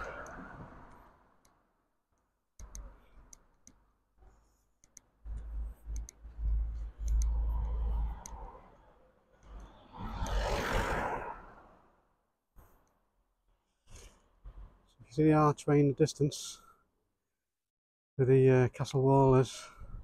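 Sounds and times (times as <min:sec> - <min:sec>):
wind rumbling on microphone: 0:00.0 - 0:01.2, 0:09.5 - 0:11.8
light clicks while walking: 0:04.8 - 0:08.6.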